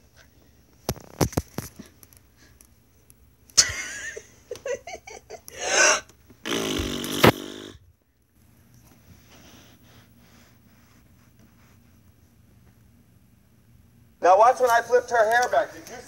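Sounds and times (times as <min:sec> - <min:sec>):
mouth fart noises: 0:05.6 - 0:07.8.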